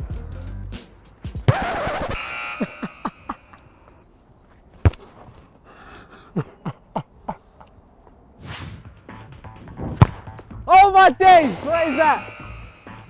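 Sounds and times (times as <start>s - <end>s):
crickets sound effect chirping: 1.6s - 9.2s, 11.8s - 13.0s
short rush of noise: 8.4s - 8.9s
soft thumps of football kicks: 9.8s - 10.4s.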